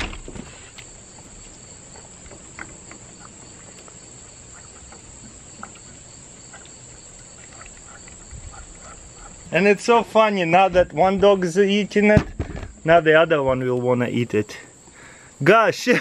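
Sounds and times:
steady high-pitched hiss: 0.0s - 16.0s
dogs licking: 0.8s - 9.7s.

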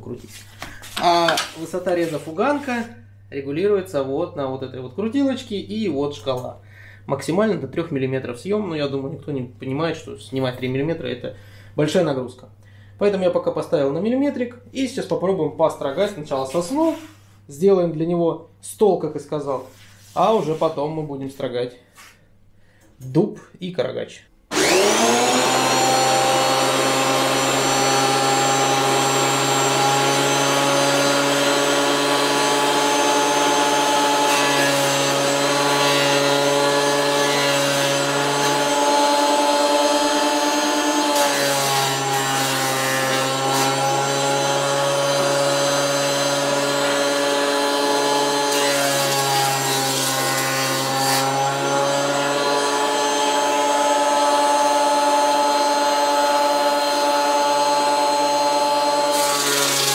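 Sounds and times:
jointer motor whine: 24.5s - 59.9s.

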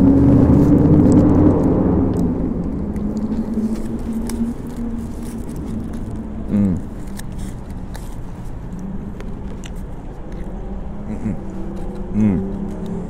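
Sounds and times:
traffic engine hum: 0.0s - 13.0s
person chewing: 2.8s - 13.0s
foil crinkling: 3.2s - 8.5s.

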